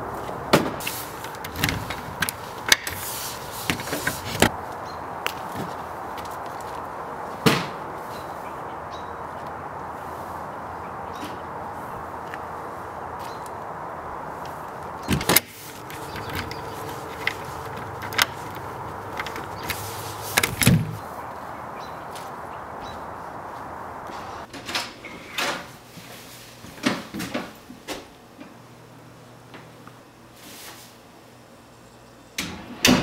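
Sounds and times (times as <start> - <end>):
jacket rustling: 14.5 - 21.0
heavy door thud with rattle: 15.1 - 21.0
shed doors knocking shut: 15.1 - 21.0.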